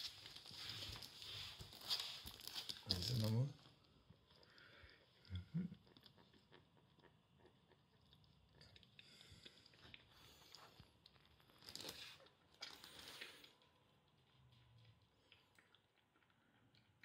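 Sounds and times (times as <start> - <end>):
rustling noise: 0.0 - 3.4
kitten lapping from bowl: 4.1 - 17.0.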